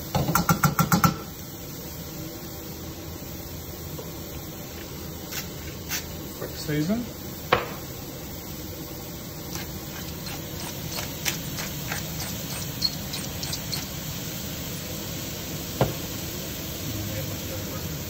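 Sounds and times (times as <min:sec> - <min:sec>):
vegetables sizzling in a pan: 0:00.0 - 0:18.0
pepper mill grinding: 0:09.4 - 0:14.2.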